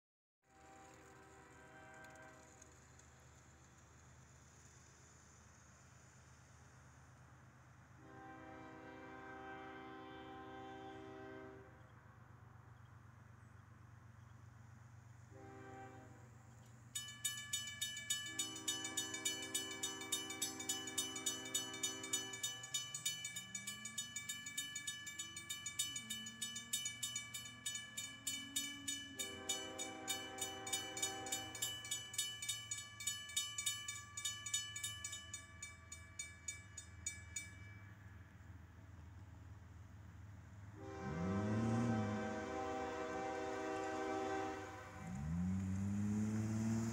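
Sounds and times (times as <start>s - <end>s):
distant locomotive horn blasts: 0.5s - 2.8s, 8.0s - 12.0s, 15.2s - 16.6s, 18.0s - 32.3s, 40.6s - 46.9s
railroad crossing bell ringing: 16.8s - 39.0s.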